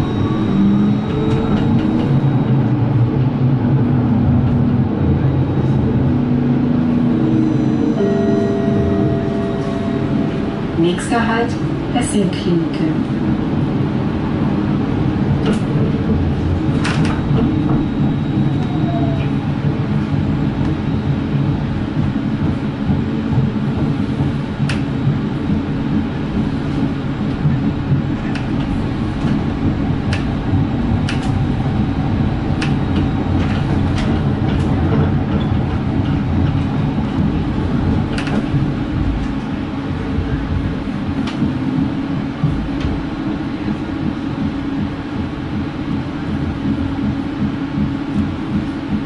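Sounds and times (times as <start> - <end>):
tram rumble and motor hum: 0.0 - 49.0
clicks and knocks of tram: 25.5 - 31.5, 32.6 - 41.8.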